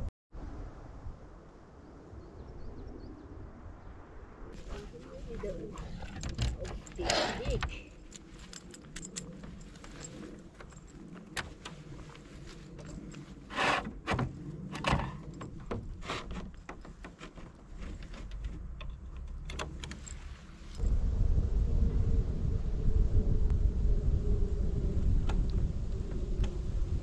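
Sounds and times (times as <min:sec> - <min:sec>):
objects clicking and rattling: 0:05.7 - 0:13.4.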